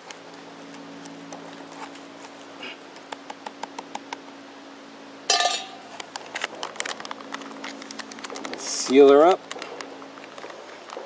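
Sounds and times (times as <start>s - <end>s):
metal spoon clattering on cup: 5.3s - 5.8s.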